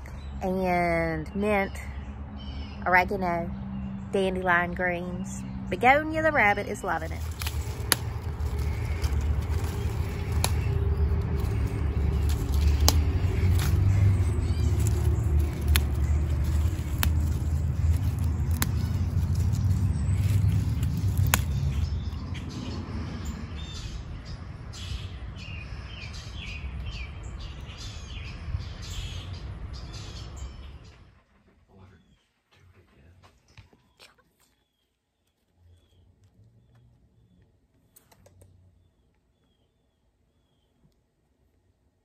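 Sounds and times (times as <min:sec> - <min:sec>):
steady low rumble: 0:00.0 - 0:32.0
birds chirping: 0:00.0 - 0:41.0
greens snapping when picked: 0:07.2 - 0:21.8.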